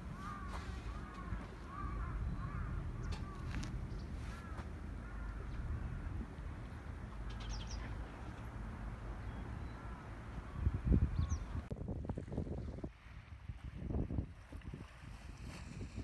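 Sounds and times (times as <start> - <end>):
bird calling: 0.0 - 6.1
wind rumble on microphone: 0.0 - 8.5, 10.3 - 16.0.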